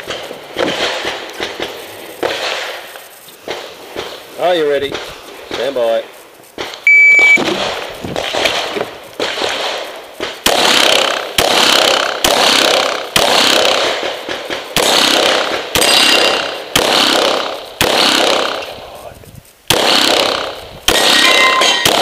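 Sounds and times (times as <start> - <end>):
pistol shots with echo: 7.4 - 18.7, 19.7 - 22.0.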